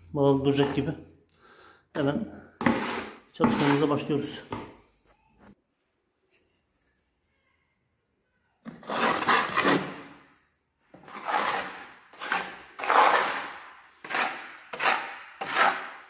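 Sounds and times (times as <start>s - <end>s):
trowel scraping mortar on wall: 0.4s - 1.0s, 2.3s - 4.8s, 8.6s - 16.0s.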